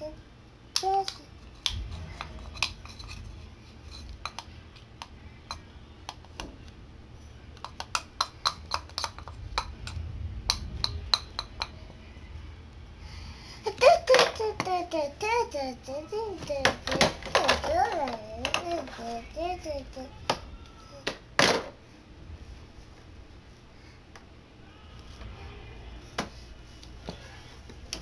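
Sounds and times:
plastic spoon clicking in pot: 7.6s - 9.7s.

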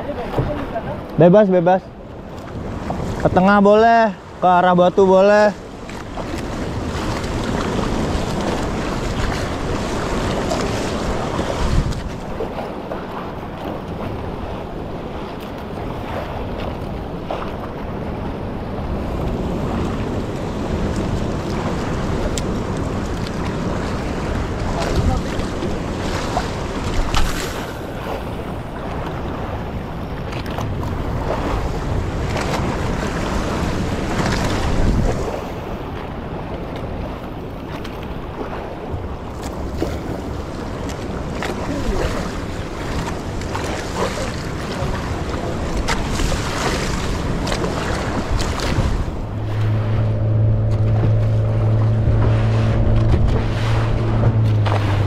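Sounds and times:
water splashes: 0.0s - 55.0s
waves slapping boat: 0.0s - 55.0s
wind buffeting microphone: 5.5s - 55.0s
low hum: 47.0s - 55.0s.

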